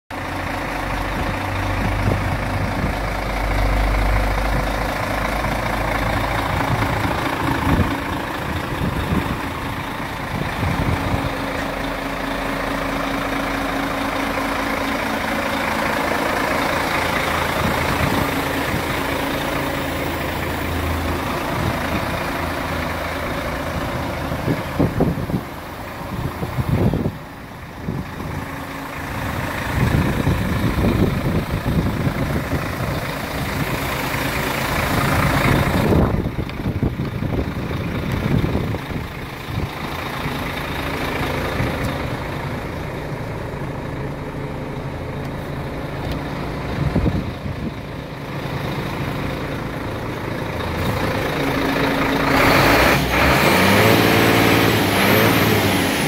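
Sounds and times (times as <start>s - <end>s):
diesel engine idling: 0.1s - 56.0s.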